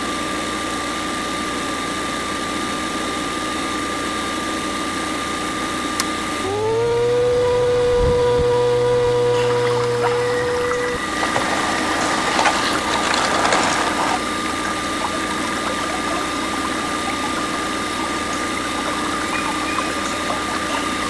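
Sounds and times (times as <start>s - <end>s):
low motor hum: 5.6s - 21.0s
rattling and splashing: 9.5s - 21.0s.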